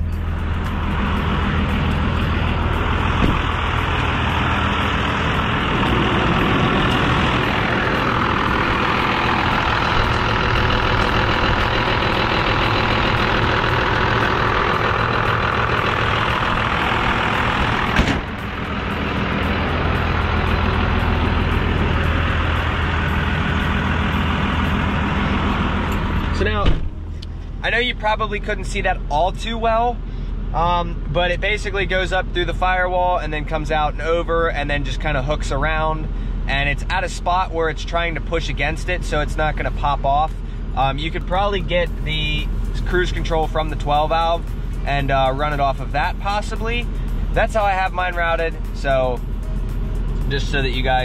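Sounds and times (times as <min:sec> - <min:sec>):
diesel engine at high idle: 0:00.0 - 0:51.0
sharp knock: 0:18.0 - 0:18.3.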